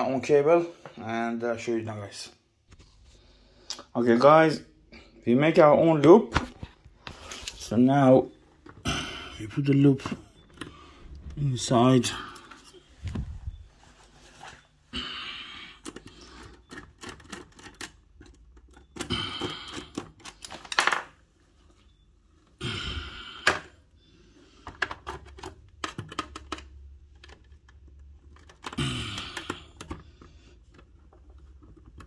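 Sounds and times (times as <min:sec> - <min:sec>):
handling rustles: 0:09.8 - 0:14.8.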